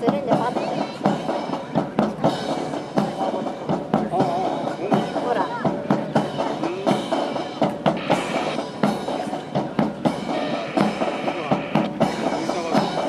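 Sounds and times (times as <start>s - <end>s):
march-style drum music: 0.0s - 13.0s.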